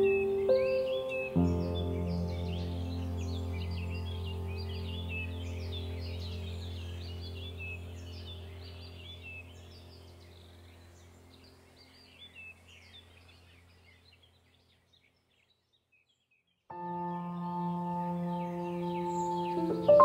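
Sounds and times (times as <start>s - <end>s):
ambient drone music: 0.0s - 12.1s, 16.7s - 20.0s
birdsong chirping: 0.0s - 20.0s.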